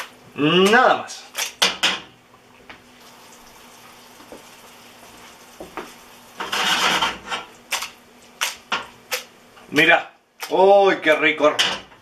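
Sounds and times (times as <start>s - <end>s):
sauce sizzling in a frying pan: 2.8s - 9.6s.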